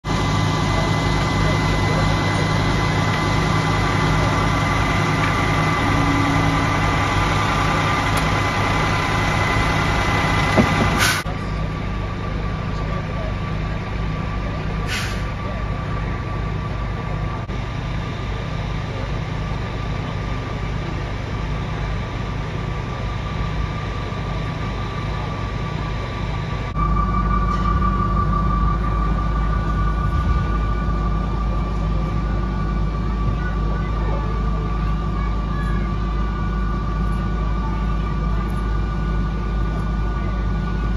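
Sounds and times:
diesel engines droning: 0:00.0 - 0:40.9
thin whine: 0:23.0 - 0:40.9.

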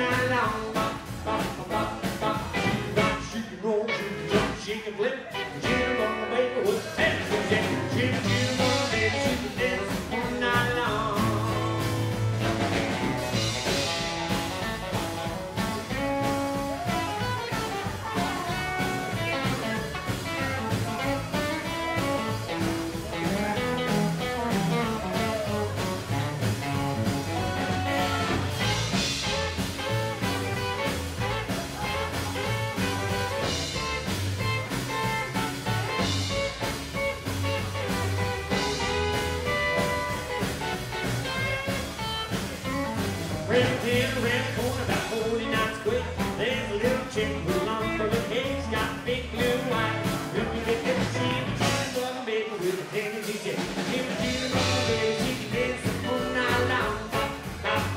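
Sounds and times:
lead vocal singing: 0:00.0 - 0:12.6, 0:43.5 - 0:57.9
rockabilly band playing: 0:00.0 - 0:57.9.

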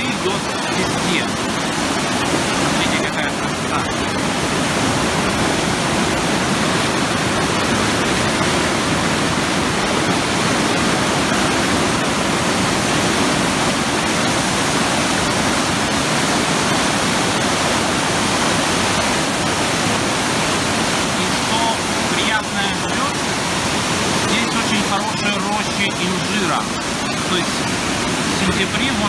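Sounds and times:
water rushing from dam outlet: 0:00.0 - 0:29.0.

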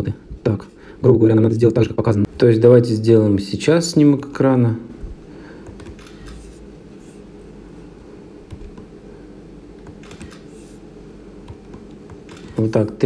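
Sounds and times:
low room hum: 0:00.0 - 0:13.0
camera shutter sound: 0:05.8 - 0:06.6, 0:10.0 - 0:10.8, 0:12.2 - 0:12.7.

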